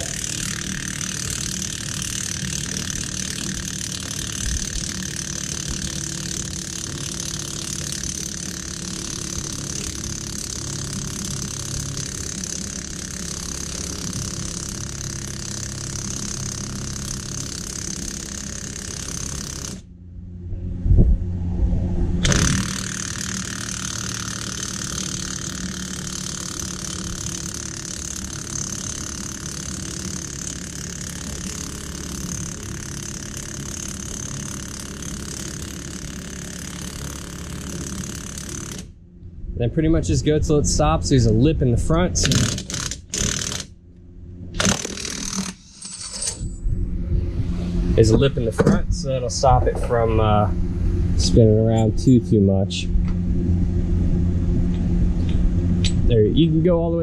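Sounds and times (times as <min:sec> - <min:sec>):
impact wrench hammering: 0:00.0 - 0:19.8, 0:22.2 - 0:38.9, 0:42.2 - 0:43.8, 0:44.6 - 0:46.5.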